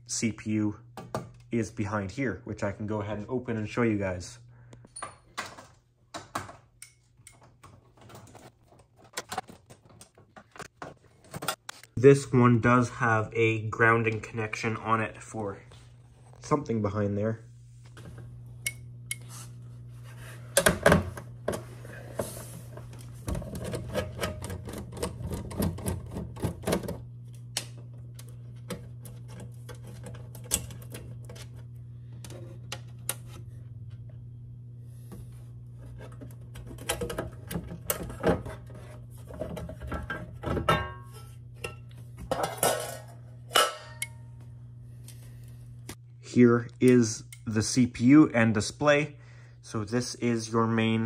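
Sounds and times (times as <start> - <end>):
steady low hum: 10.5 - 51.0.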